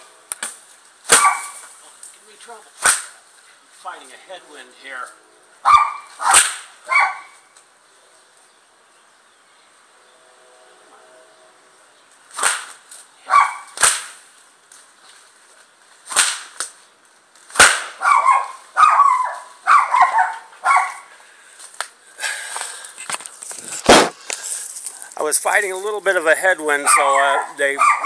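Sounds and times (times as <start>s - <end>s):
bullwhip cracking: 0.3s - 1.7s, 2.8s - 3.2s, 6.1s - 6.8s, 12.3s - 13.0s, 13.6s - 14.2s, 16.0s - 16.8s, 17.4s - 18.0s, 23.9s - 24.2s
dog barking: 1.2s - 1.6s, 5.6s - 7.4s, 13.3s - 13.7s, 18.0s - 21.1s, 26.8s - 28.0s.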